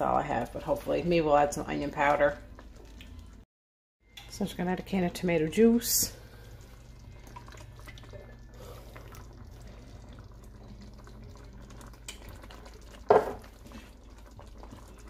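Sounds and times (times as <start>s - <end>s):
liquid trickling and dripping: 2.4s - 3.4s, 6.2s - 15.0s.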